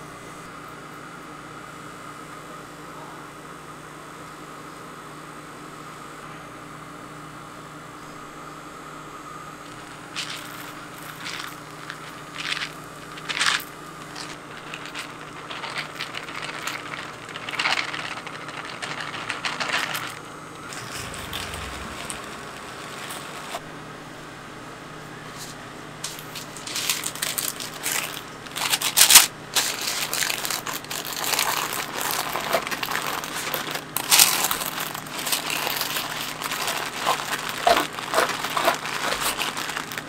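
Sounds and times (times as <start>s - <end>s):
machine hum: 7.5s - 40.0s
dry cereal rattling: 9.6s - 23.6s, 26.1s - 40.0s.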